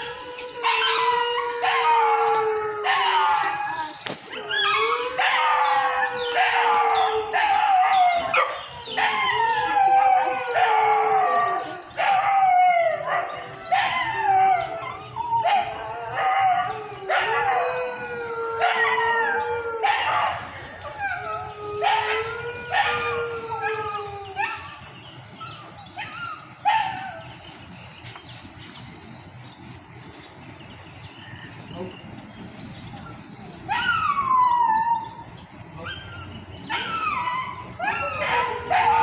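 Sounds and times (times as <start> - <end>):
dog howling: 0.0 - 27.2, 33.7 - 39.0
dogs barking: 4.6 - 17.8, 18.6 - 27.3, 36.1 - 39.0.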